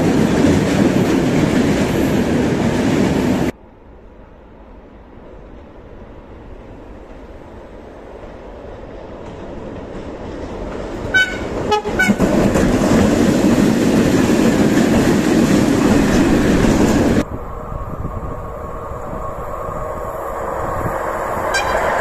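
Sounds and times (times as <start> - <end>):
train wagons rumbling and clattering: 0.0 - 3.6, 4.9 - 22.0
train horn toots: 11.1 - 12.4, 21.5 - 22.0.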